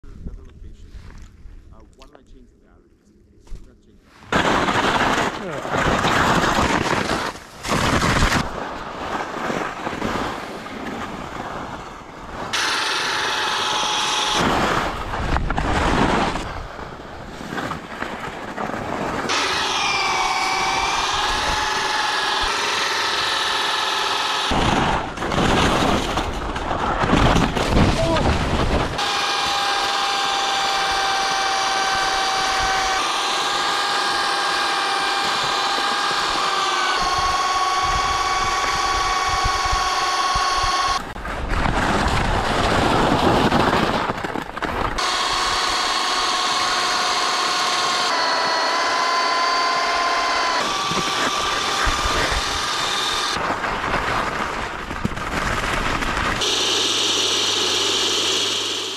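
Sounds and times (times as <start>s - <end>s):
skis scraping on icy snow: 4.1s - 12.6s, 14.4s - 19.3s, 41.2s - 45.0s
ski-tow motor whining: 8.0s - 17.8s, 18.7s - 27.0s, 28.8s - 41.2s, 41.8s - 53.5s, 56.4s - 58.9s.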